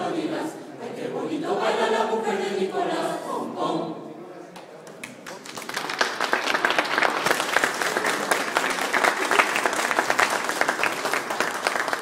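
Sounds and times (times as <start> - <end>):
audience applauding: 4.9 - 12.0.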